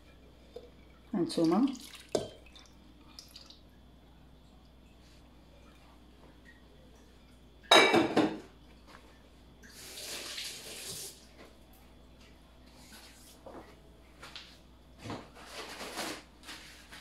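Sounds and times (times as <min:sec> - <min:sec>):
dish set down clattering: 0:07.7 - 0:08.5.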